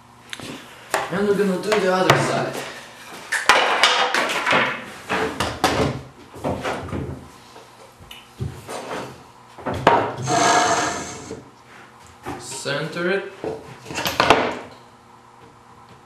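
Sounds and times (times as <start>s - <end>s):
wood scraping: 10.2s - 11.4s.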